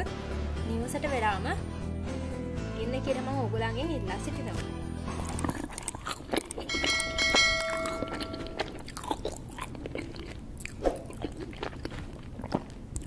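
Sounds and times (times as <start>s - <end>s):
bell-like chime: 6.7s - 8.6s.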